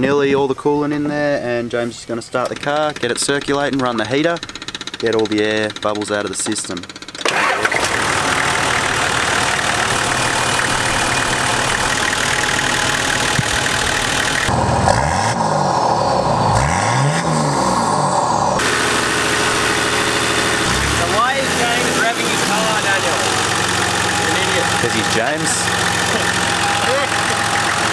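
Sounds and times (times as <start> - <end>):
diesel engine running and revving: 7.2 - 27.9.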